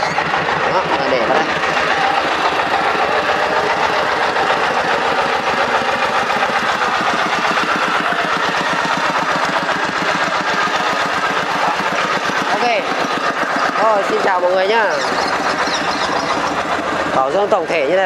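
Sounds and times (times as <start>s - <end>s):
diesel engine running: 0.0s - 18.0s.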